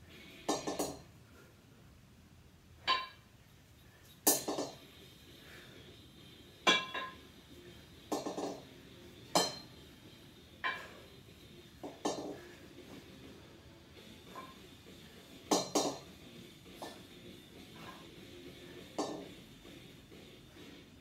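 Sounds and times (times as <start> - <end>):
kettlebells clanking together: 0.5 - 1.0, 2.8 - 3.2, 4.2 - 4.8, 6.6 - 7.2, 8.1 - 8.6, 9.3 - 9.8, 10.6 - 11.0, 11.8 - 12.4, 15.5 - 16.1, 19.0 - 19.3.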